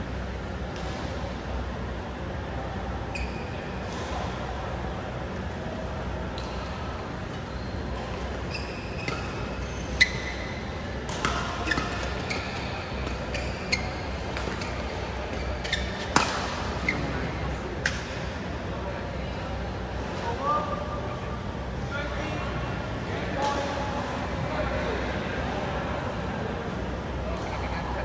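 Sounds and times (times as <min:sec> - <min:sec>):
steady low hum: 0:00.0 - 0:28.0
shoes squeaking on court: 0:03.1 - 0:04.0, 0:07.3 - 0:17.4
rackets hitting shuttlecock: 0:11.0 - 0:13.5, 0:15.4 - 0:16.8.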